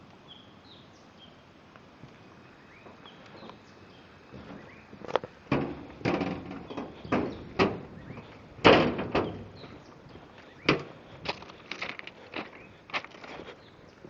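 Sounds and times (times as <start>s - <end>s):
footsteps on stone ballast: 4.3s - 13.8s.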